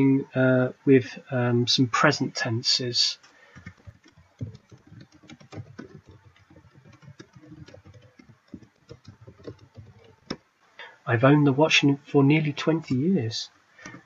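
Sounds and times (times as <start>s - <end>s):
computer keyboard typing: 3.5s - 10.4s.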